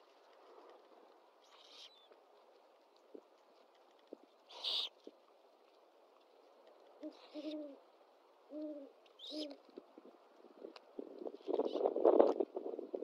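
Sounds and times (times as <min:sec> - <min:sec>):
owl hooting: 0:01.4 - 0:02.0, 0:04.5 - 0:04.9, 0:07.0 - 0:07.8, 0:08.5 - 0:09.6.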